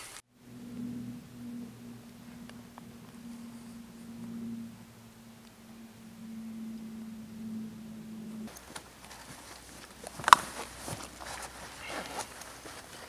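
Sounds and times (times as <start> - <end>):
low steady hum: 0.0 - 13.0
canvas packs rustling: 8.5 - 13.0
straps and buckles clicking: 8.5 - 13.0.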